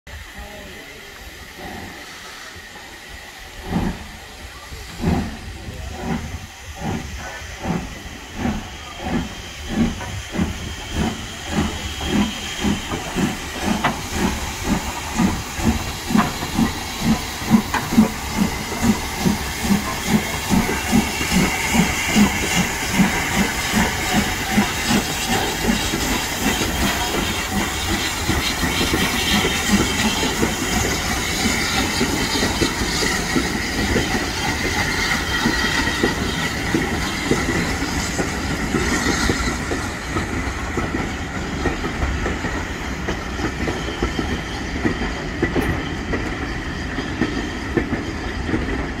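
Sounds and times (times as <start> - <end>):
hiss of steam: 0.1 - 49.0
steam locomotive exhaust chuffs: 0.1 - 49.0.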